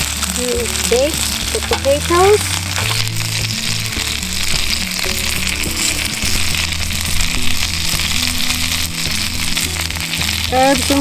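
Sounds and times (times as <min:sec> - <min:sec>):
background music with bass line: 0:00.0 - 0:11.0
chicken sizzling in skillet: 0:00.0 - 0:11.0
potato cubes dropped into pan: 0:01.6 - 0:01.9.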